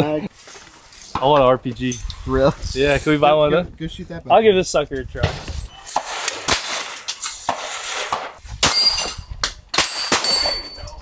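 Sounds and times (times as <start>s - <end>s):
gunshots: 6.0s - 8.8s.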